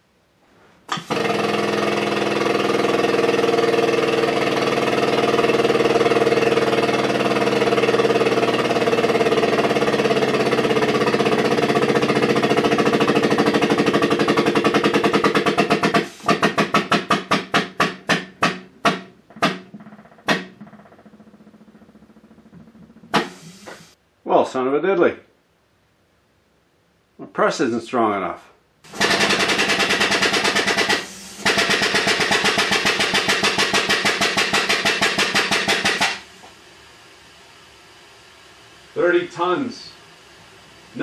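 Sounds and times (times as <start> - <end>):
hydraulic pump chattering: 0.9 - 23.9, 28.9 - 36.4.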